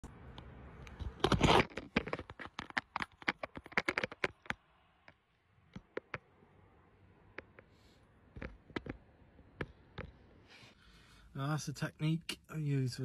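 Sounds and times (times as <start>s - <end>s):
sharp clicks and taps: 2.0s - 6.4s, 7.2s - 10.4s.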